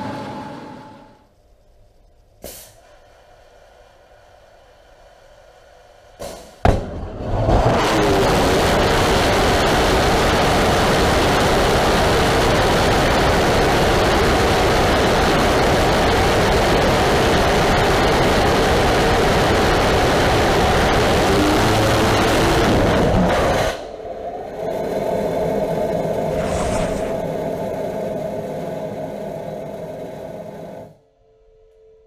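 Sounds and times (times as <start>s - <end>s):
rocket engine roaring: 6.8s - 23.8s, 24.6s - 29.7s.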